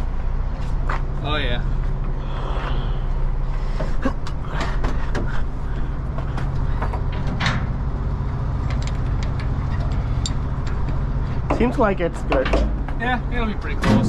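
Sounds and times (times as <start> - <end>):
truck engine humming: 0.0 - 14.0
metal clanks and rattles: 3.8 - 14.0.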